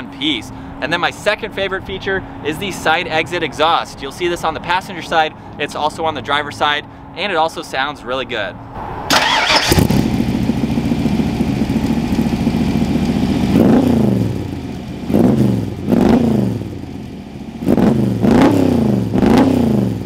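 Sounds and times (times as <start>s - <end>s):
car engine revving: 8.8s - 17.0s, 17.6s - 20.0s.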